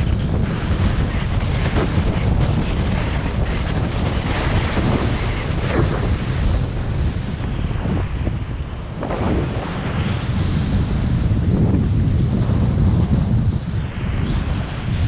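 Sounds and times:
wind buffeting microphone: 0:00.0 - 0:15.0
water and waves splashing: 0:02.9 - 0:10.8.

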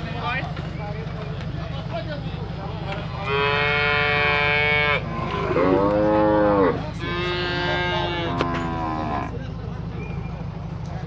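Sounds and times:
calves mooing: 0:03.1 - 0:09.3.

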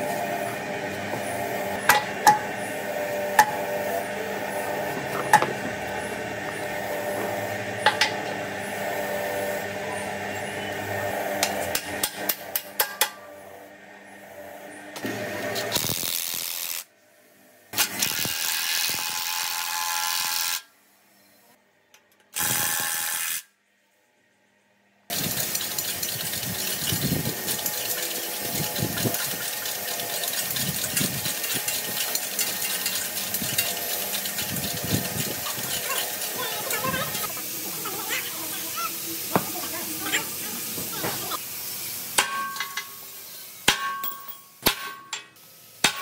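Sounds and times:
power tool running: 0:22.3 - 0:23.5, 0:25.1 - 0:43.6.

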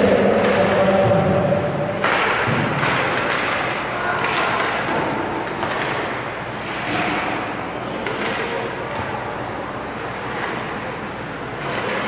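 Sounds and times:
stick and puck knocks: 0:02.0 - 0:07.4, 0:08.0 - 0:08.7.

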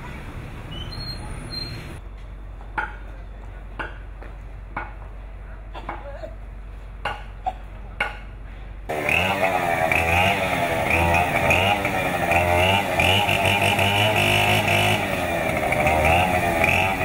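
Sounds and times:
chopping tree branches: 0:08.9 - 0:17.0.

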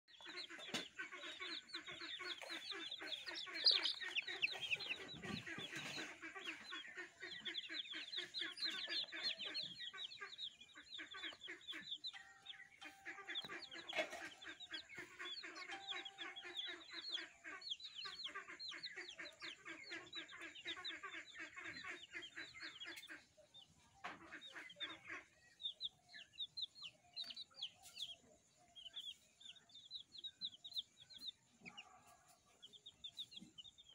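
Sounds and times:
baby chicks peeping: 0:00.1 - 0:33.9.

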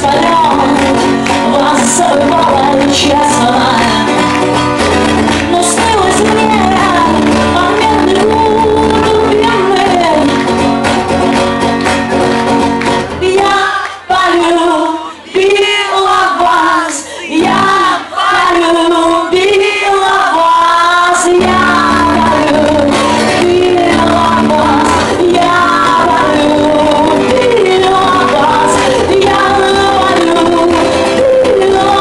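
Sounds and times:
female vocals: 0:00.0 - 0:04.4, 0:05.4 - 0:10.4, 0:13.2 - 0:32.0
strummed acoustic guitar: 0:00.0 - 0:13.5, 0:21.3 - 0:32.0.

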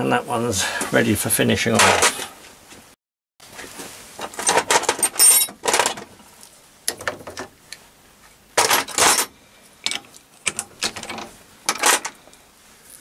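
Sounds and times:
metal tooling clanking and rattling: 0:04.2 - 0:06.1, 0:08.6 - 0:12.2.

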